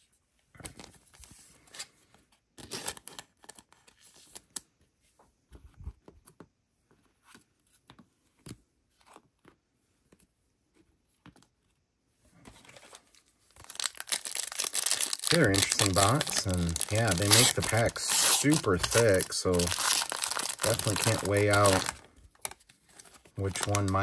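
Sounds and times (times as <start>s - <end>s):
trading cards clicking and rustling: 13.6s - 24.0s.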